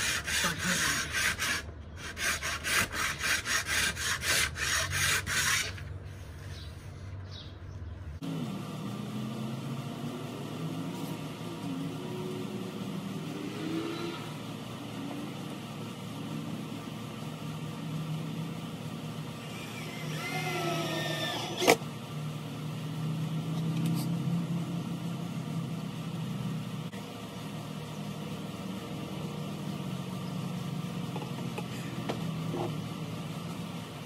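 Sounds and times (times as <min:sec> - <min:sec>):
steady low hum: 0:00.0 - 0:34.0
cordless drill motor whine: 0:19.2 - 0:21.8.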